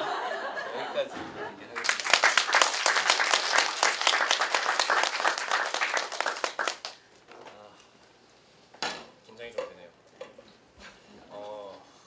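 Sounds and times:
audience clapping: 1.7 - 7.0.

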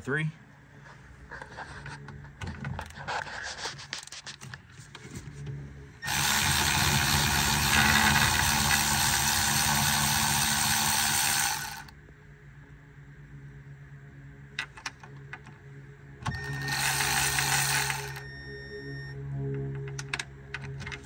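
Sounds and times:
loud steady machine noise: 6.0 - 12.0, 16.2 - 18.4
wrench clicking and rattling: 6.1 - 11.9.

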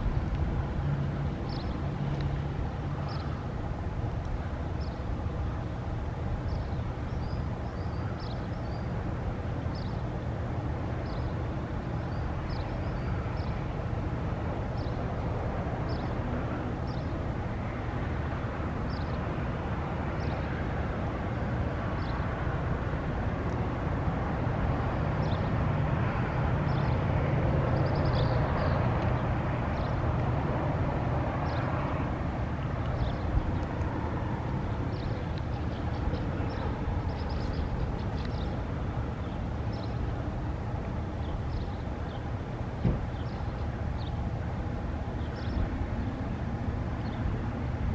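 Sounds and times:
road traffic rumble: 0.0 - 47.9
small birds chirping: 34.9 - 38.6.

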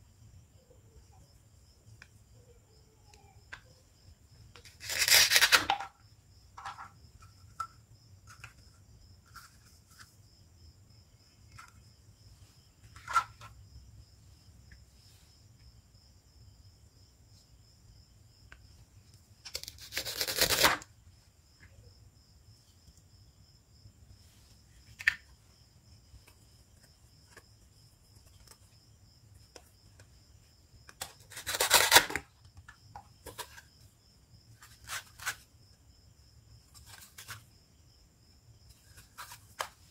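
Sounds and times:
velcro tearing: 4.6 - 5.8, 19.5 - 20.9, 31.0 - 32.3.

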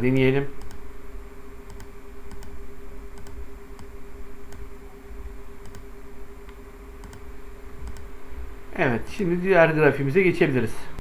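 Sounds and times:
electrical hum: 0.0 - 11.0
computer mouse clicks: 0.6 - 0.8, 1.7 - 2.6, 3.2 - 4.7, 5.6 - 8.1.

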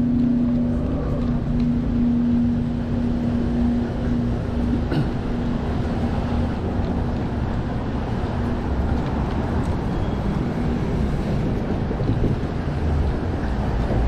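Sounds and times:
low rumble with steady hum: 0.0 - 9.8.

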